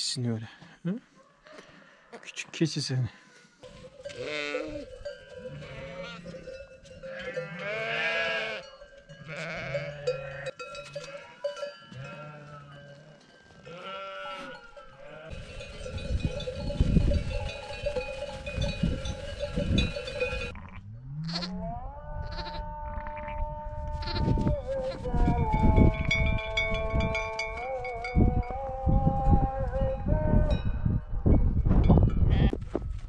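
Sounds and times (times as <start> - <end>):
goats and sheep bleating: 3.3 - 30.6, 32.3 - 32.6
livestock bells clanking: 3.6 - 20.6, 25.5 - 28.7, 29.7 - 32.4.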